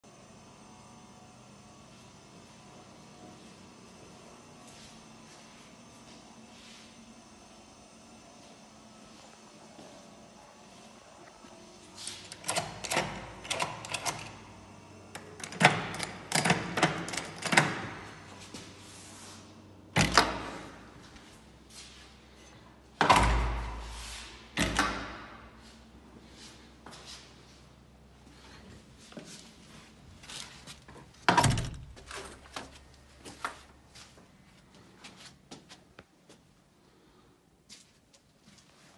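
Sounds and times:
key turning in lock: 0:12.3 - 0:14.3
heavy steel door thud: 0:31.3 - 0:32.0.

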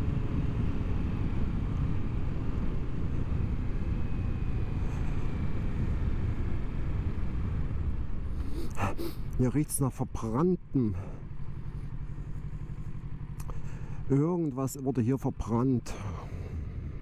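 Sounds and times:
motorcycle engine running: 0:09.2 - 0:17.0.

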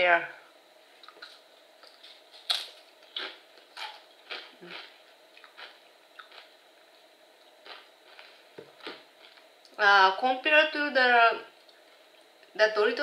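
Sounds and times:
chips crunching: 0:01.0 - 0:06.5.

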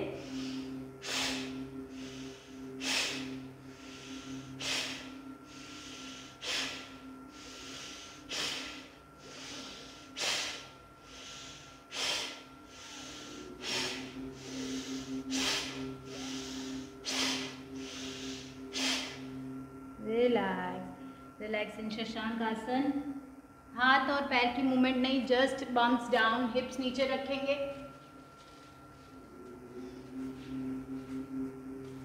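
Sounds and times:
soft inhalations: 0:00.1 - 0:19.4
forceful nasal exhalations: 0:11.9 - 0:19.3.

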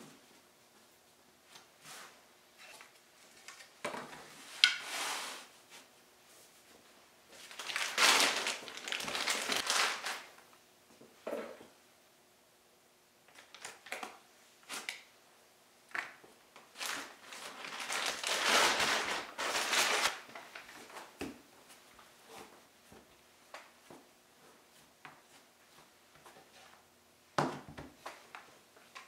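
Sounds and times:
plastic bag crinkling: 0:07.4 - 0:10.4, 0:16.7 - 0:20.9.

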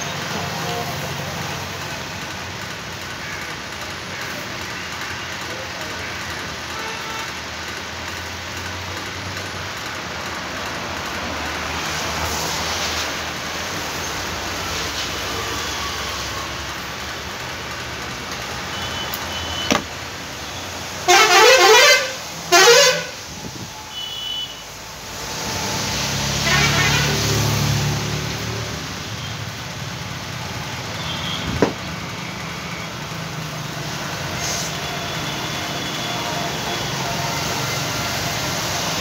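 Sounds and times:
street traffic passing: 0:00.0 - 0:39.0
vehicle horn honking: 0:21.0 - 0:23.2, 0:23.9 - 0:24.6, 0:26.4 - 0:27.5.

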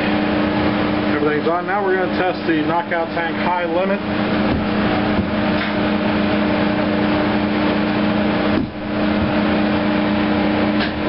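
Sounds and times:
air compressor and blower humming: 0:00.0 - 0:11.0.

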